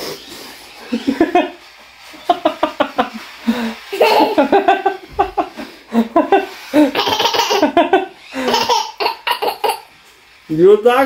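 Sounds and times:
boy laughing: 0.9s - 1.6s, 2.2s - 10.0s
man laughing: 0.9s - 1.6s, 2.2s - 9.6s.

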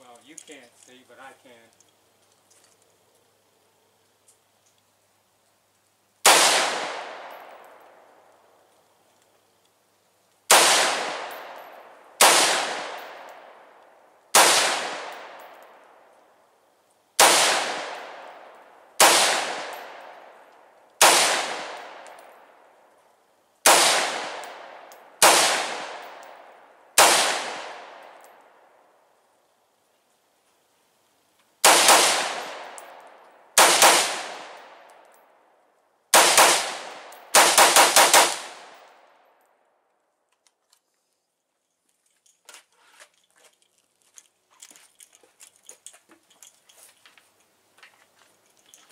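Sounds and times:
rifle shots with echo: 6.2s - 8.0s, 10.5s - 15.9s, 17.2s - 22.5s, 23.6s - 28.7s, 31.6s - 35.0s, 36.1s - 39.1s.

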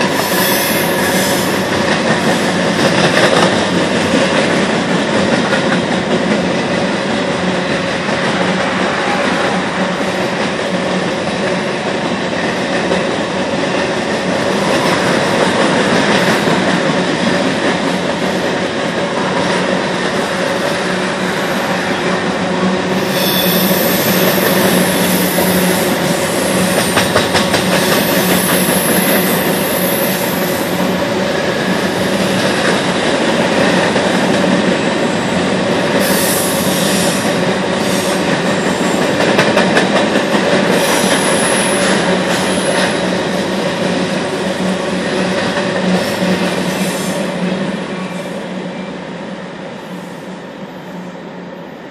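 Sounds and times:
train cars rumbling on rails: 0.0s - 51.9s
high-pitched wheel squeal: 23.0s - 25.8s.

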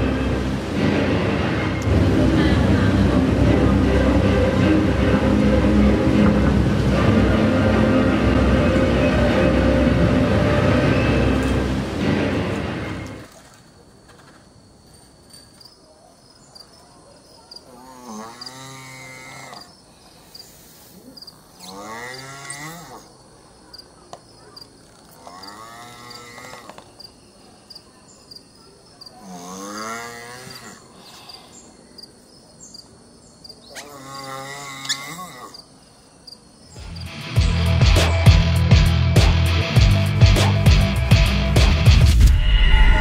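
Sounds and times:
crickets ticking: 13.6s - 30.4s
tortoise wavering calls: 33.7s - 35.8s.

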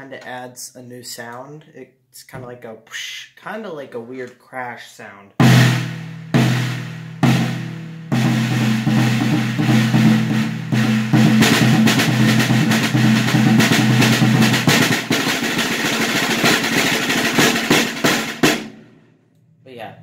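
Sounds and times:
snare drum rolls and strokes: 5.4s - 18.9s.

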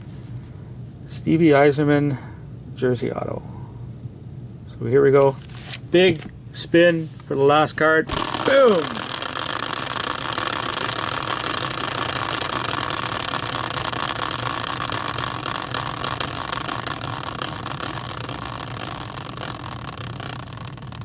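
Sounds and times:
caster wheel whirring with rattle: 8.1s - 21.0s.

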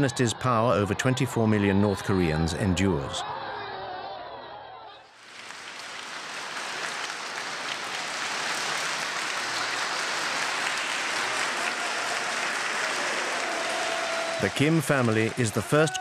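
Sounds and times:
crowd applauding: 5.1s - 16.0s.

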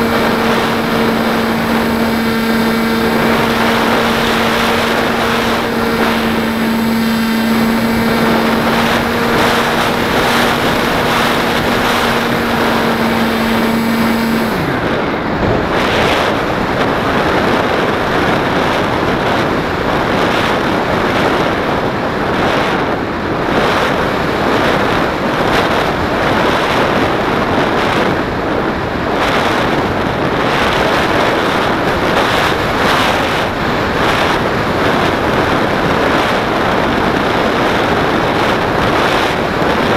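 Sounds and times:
model plane motor humming: 0.0s - 21.7s
wind rushing over camera: 0.0s - 39.9s.

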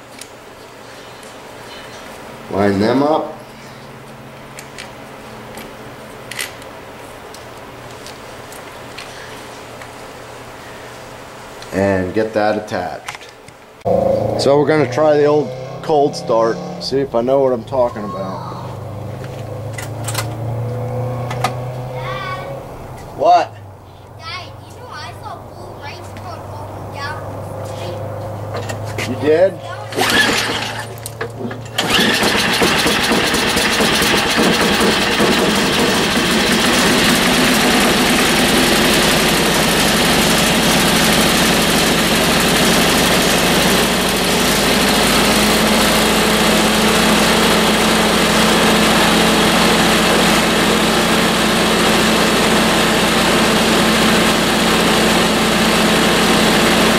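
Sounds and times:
snowblower engine starting and running: 28.5s - 56.9s.

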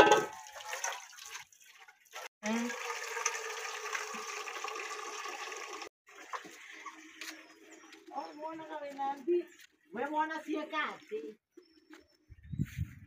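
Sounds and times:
water running from a tap: 0.3s - 7.8s.

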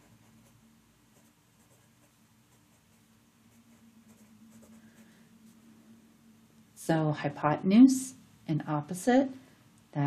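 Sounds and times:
pencil scratching on paper: 0.0s - 5.1s.

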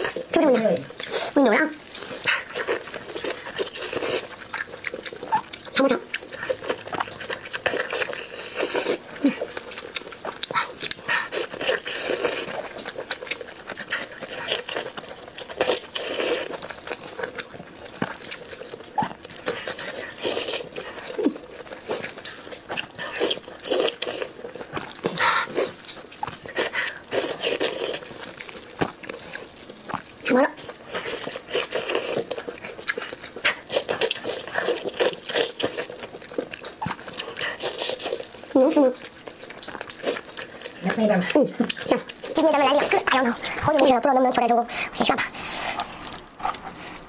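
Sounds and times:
wet chewing and slurping: 0.0s - 47.0s.

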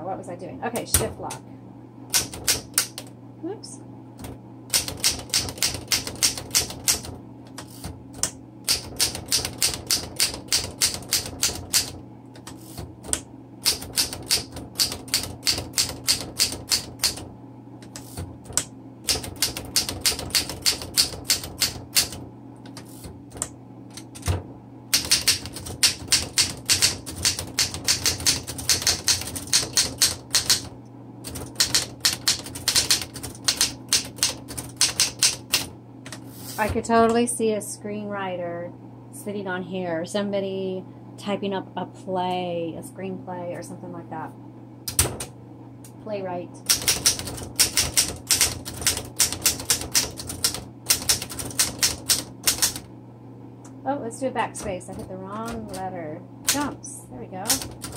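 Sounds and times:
typewriter keys striking: 2.1s - 3.0s, 4.7s - 12.8s, 13.6s - 17.2s, 17.9s - 22.9s, 23.9s - 24.4s, 25.0s - 30.7s, 31.3s - 35.7s, 46.6s - 52.8s, 57.5s - 57.9s.

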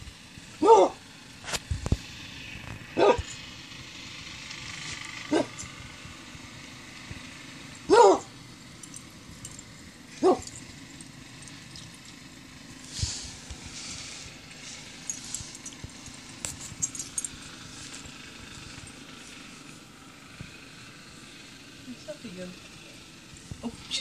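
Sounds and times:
puppy barking: 0.6s - 1.0s, 3.0s - 3.3s, 5.3s - 5.6s, 7.9s - 8.3s, 10.2s - 10.6s.

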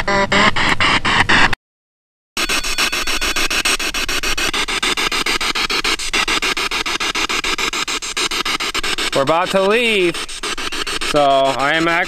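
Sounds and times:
radio sweeping through stations: 0.0s - 1.6s, 2.4s - 12.0s
chopped static hiss: 2.4s - 12.0s.

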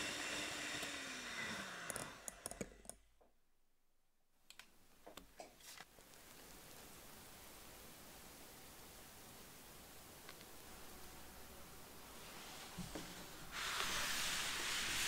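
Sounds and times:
electric hand mixer winding down: 0.0s - 2.8s.

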